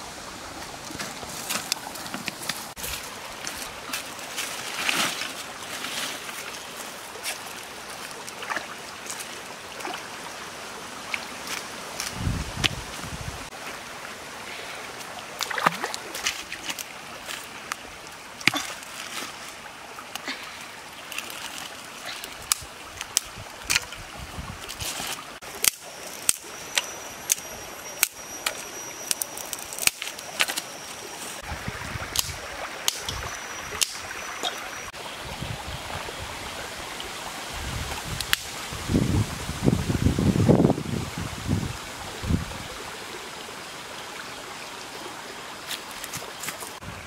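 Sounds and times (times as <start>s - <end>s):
stream trickling over rocks: 0.0s - 47.0s
stones and sticks clicking: 25.6s - 30.7s.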